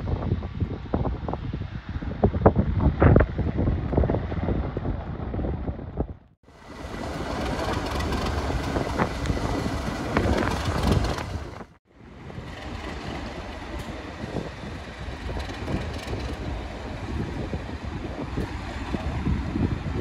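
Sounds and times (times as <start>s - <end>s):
diesel locomotive engine: 2.9s - 20.0s
train wheels on rails: 6.5s - 19.3s.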